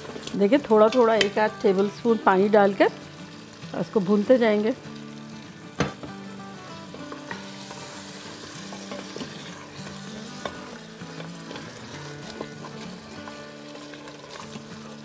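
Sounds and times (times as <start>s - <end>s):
meat sizzling in a pot: 0.0s - 15.0s
spatula scraping a pot: 7.4s - 14.6s.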